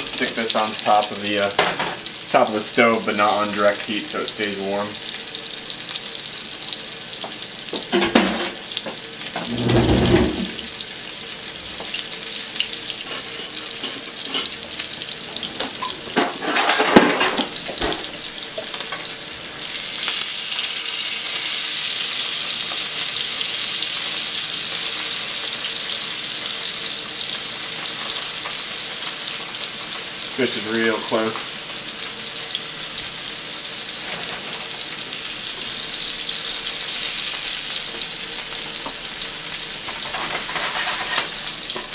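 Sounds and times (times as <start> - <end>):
fish sizzling in a pan: 0.0 - 41.9
kitchen knocks and clatters: 1.5 - 2.1, 7.7 - 8.6, 9.3 - 10.7, 15.4 - 19.1, 39.9 - 41.9.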